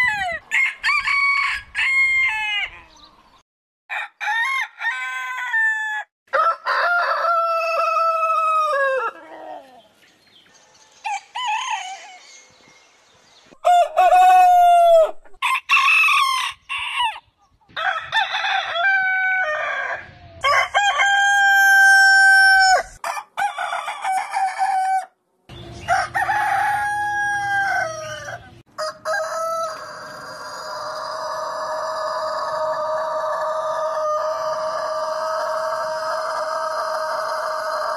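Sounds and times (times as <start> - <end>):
roosters crowing: 0.0 - 3.1, 3.9 - 9.9, 11.0 - 12.4, 13.6 - 37.9.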